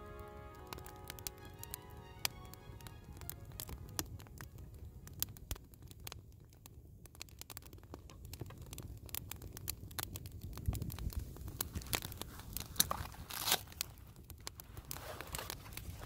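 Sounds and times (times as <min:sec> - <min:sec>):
campfire crackling: 0:00.0 - 0:16.0
tearing rasp: 0:12.8 - 0:13.9.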